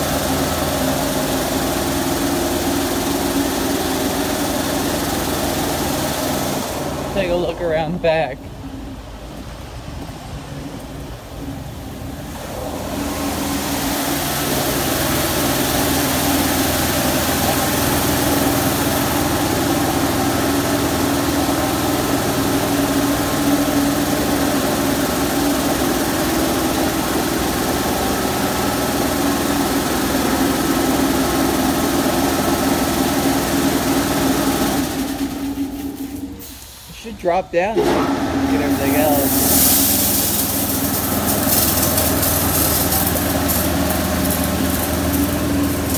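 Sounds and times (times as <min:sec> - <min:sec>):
pump motor drone: 0:00.0 - 0:45.9
water jets hissing: 0:38.5 - 0:45.9.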